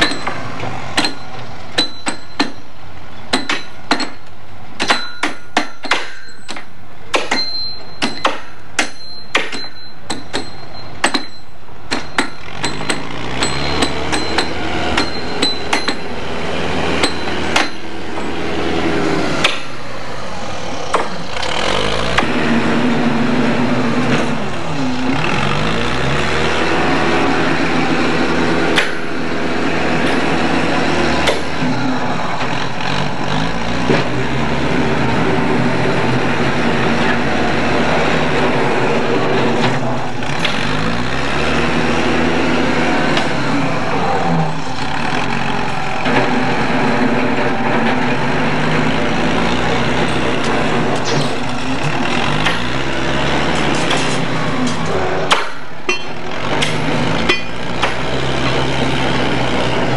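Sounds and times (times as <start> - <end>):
diesel engine revving: 0.0 - 4.8, 11.7 - 59.9
metal clank: 0.0 - 16.2, 53.5 - 58.1
hammers striking metal spikes: 0.0 - 20.0, 26.5 - 34.4, 44.6 - 59.9.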